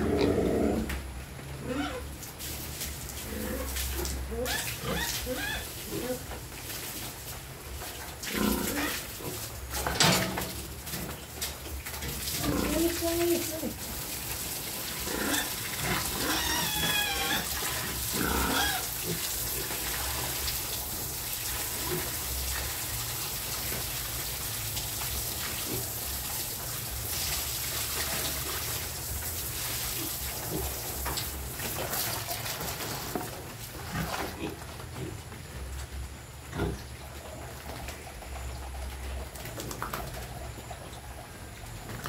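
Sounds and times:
piglets squealing: 1.6 - 2.1, 4.3 - 6.2, 15.1 - 19.0.

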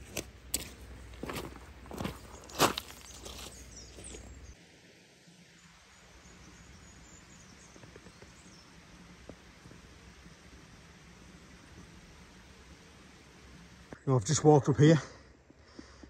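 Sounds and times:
footsteps on path: 0.0 - 4.6.

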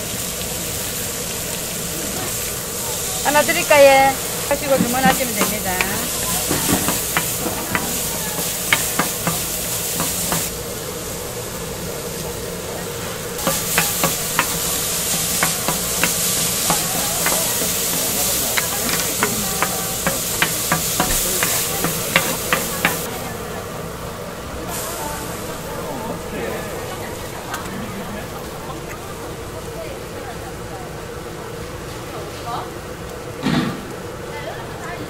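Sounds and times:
vegetables sizzling on griddle: 0.0 - 28.4
wooden spatulas clacking: 4.5 - 10.5, 13.4 - 23.1.

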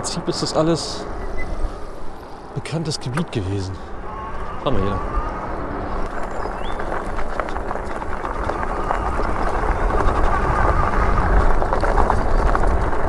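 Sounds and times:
wind on microphone: 3.9 - 13.0
tyre rumble: 5.5 - 13.0.

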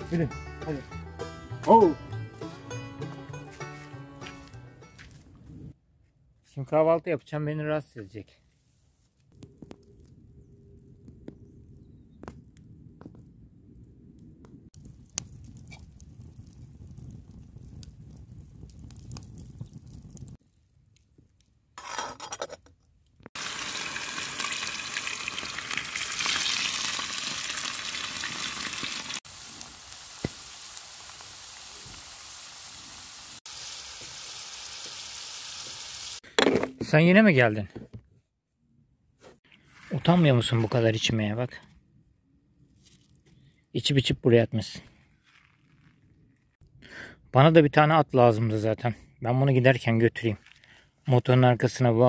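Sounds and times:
small crackles: 14.2 - 21.6, 45.0 - 46.6
food sizzling in hot oil: 23.4 - 36.2.

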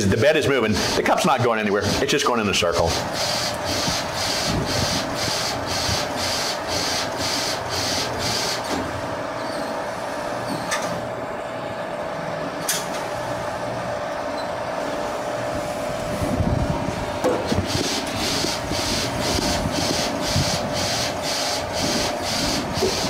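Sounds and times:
printer mechanical hum: 0.0 - 23.0
rapid rhythmic printer pulses: 0.6 - 8.8, 17.6 - 23.0.

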